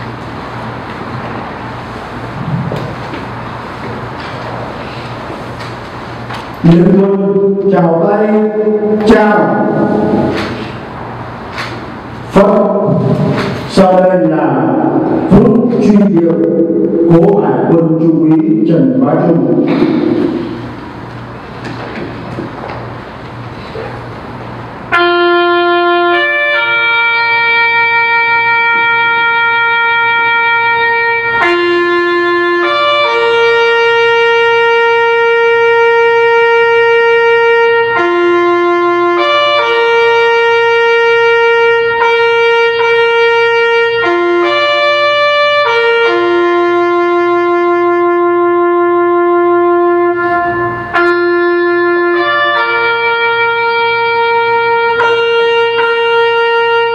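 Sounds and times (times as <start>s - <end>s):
bugle playing long notes: 24.9s - 56.9s.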